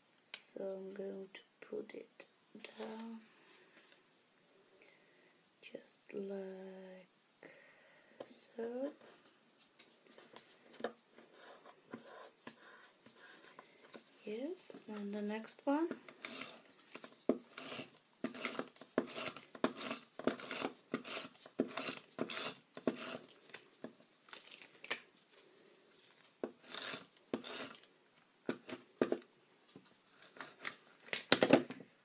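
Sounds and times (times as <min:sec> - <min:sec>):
tape runner drawn across card: 0:16.2 - 0:23.6, 0:26.6 - 0:27.8.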